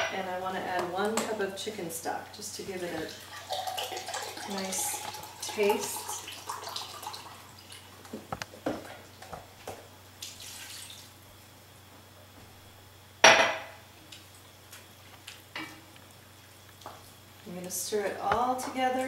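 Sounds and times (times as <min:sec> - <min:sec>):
liquid pouring: 0:03.0 - 0:08.0, 0:10.2 - 0:11.1
kitchenware clinking: 0:13.2 - 0:13.8.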